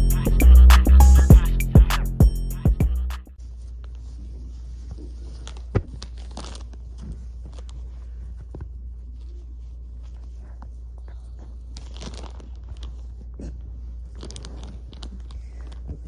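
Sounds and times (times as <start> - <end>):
rustling and handling: 3.4 - 16.0.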